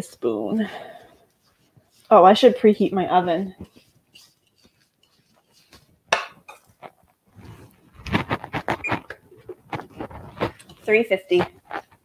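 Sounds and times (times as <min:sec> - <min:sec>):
knocks and clinks of kitchen things: 0:06.1 - 0:06.7.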